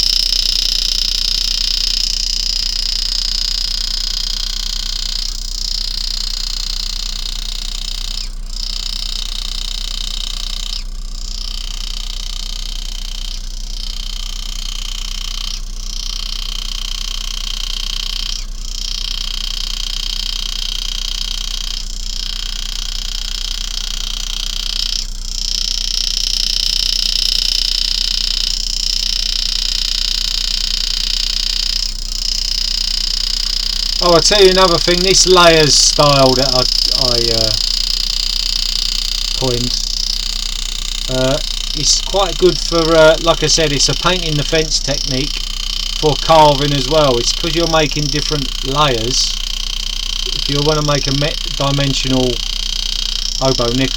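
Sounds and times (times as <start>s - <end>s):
engraving tool buzzing: 0.0s - 53.9s
low hum: 33.0s - 52.6s.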